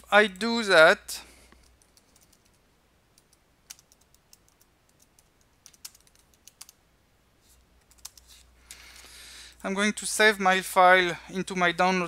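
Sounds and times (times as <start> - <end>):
keyboard typing: 1.6 - 2.6, 3.2 - 6.8, 7.8 - 8.4.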